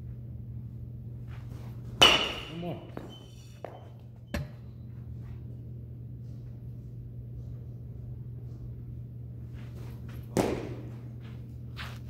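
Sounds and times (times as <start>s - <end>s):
low hum: 0.0s - 12.0s
baseball bat hitting ball: 2.0s - 3.8s, 10.3s - 11.0s.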